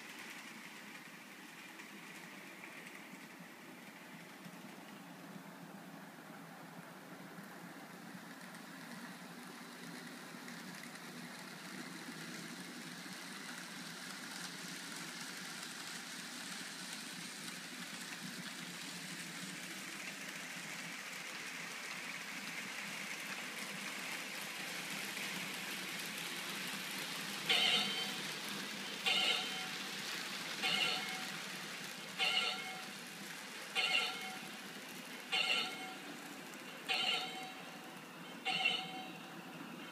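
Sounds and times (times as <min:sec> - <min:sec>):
train wheels rolling: 0:00.0 - 0:39.9
model train motor whirring: 0:09.8 - 0:39.2.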